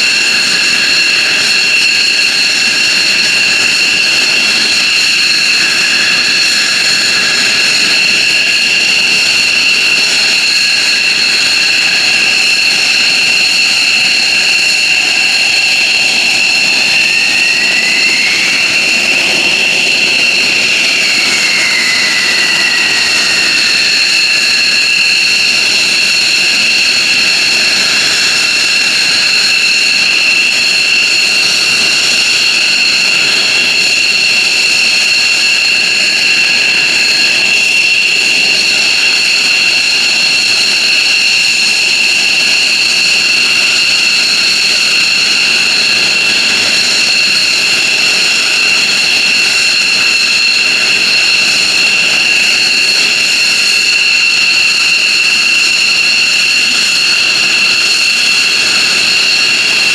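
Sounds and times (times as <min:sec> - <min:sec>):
jet engines whining: 0:00.0 - 0:59.9
rising and falling whine: 0:00.0 - 0:59.9.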